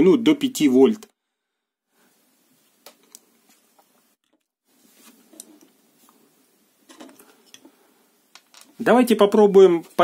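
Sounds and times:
circuit board handling noises: 8.4s - 8.8s.

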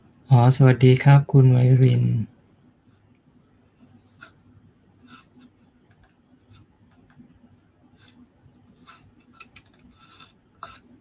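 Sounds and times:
low steady hum: 0.0s - 11.0s
small clicks and ticks: 5.8s - 7.2s, 8.0s - 10.8s.

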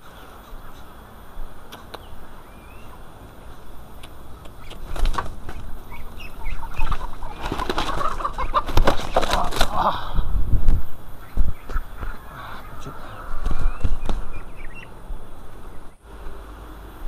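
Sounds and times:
duck flapping wings: 4.4s - 14.9s.

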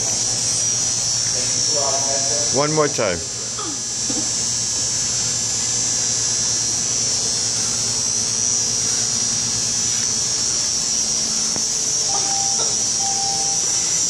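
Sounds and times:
machine hum: 0.0s - 14.0s
high-pitched hiss: 7.7s - 14.0s.

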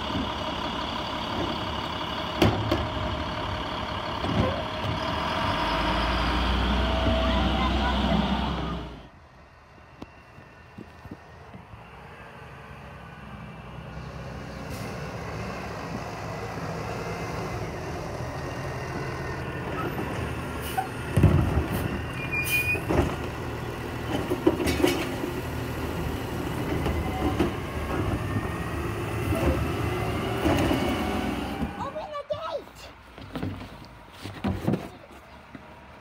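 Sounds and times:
garbage truck diesel engine: 0.0s - 36.0s
cart knocking and banging: 21.1s - 21.9s, 22.8s - 23.4s, 24.0s - 25.3s, 33.2s - 35.1s.

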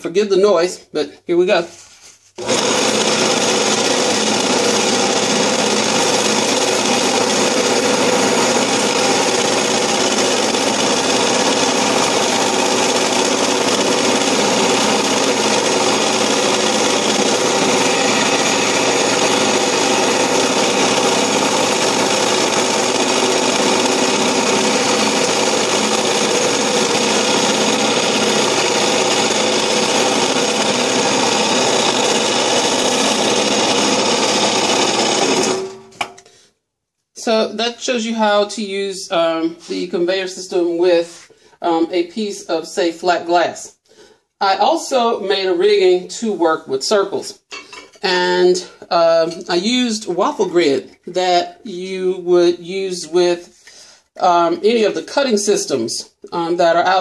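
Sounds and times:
belt sander running: 2.4s - 36.0s.

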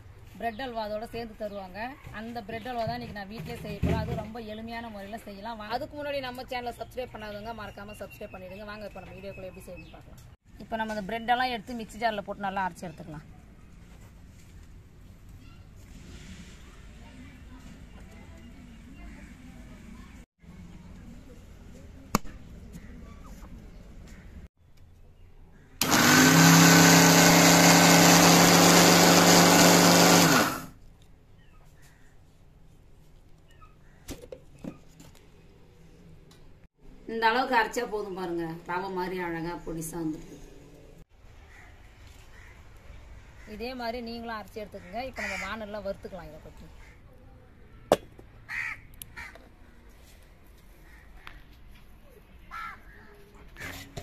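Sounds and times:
mixer grinder running: 25.8s - 30.7s
crows cawing: 41.5s - 42.7s, 44.8s - 45.6s, 48.5s - 49.5s, 52.5s - 53.0s.

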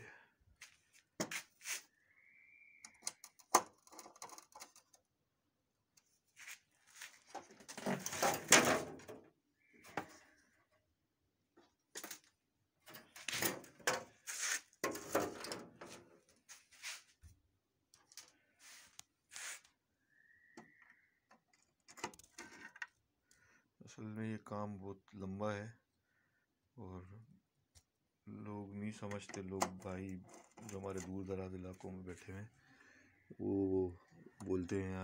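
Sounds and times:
scraping and clatter: 7.3s - 9.1s.

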